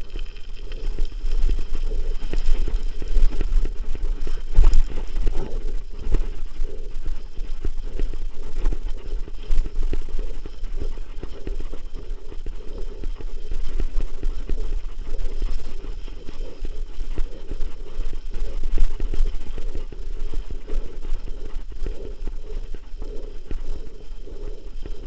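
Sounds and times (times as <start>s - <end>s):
wind on microphone: 0.0s - 25.0s.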